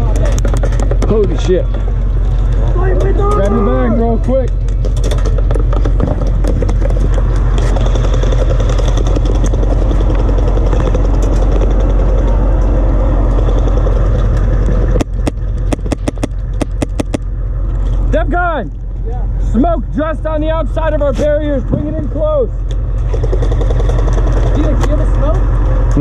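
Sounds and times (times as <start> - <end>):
vehicle engine running: 0.0 - 26.0
sharp ticks: 6.6 - 17.3.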